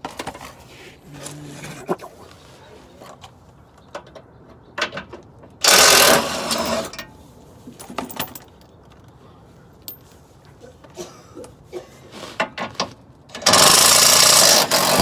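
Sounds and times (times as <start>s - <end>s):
power tool running: 13.4s - 15.0s.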